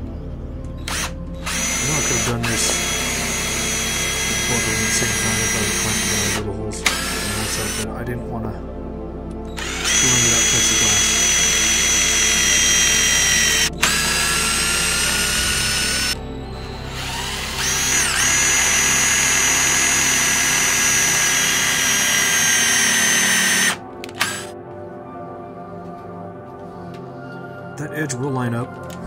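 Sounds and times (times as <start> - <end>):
power drill whining: 0.8 - 8.0, 9.5 - 24.6.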